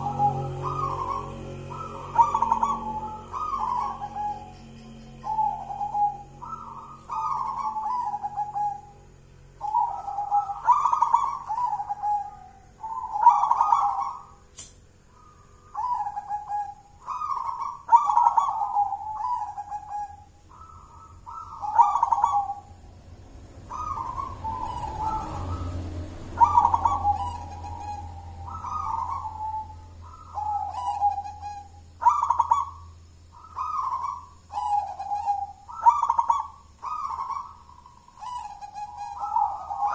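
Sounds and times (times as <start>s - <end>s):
dove cooing: 0.0s - 14.4s, 15.1s - 39.9s.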